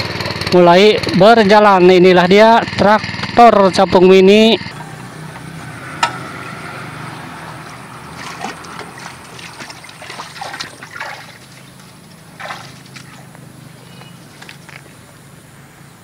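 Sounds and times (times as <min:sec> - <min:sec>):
small engine running: 0:00.0 - 0:16.0
water and mud splashing: 0:04.7 - 0:14.7.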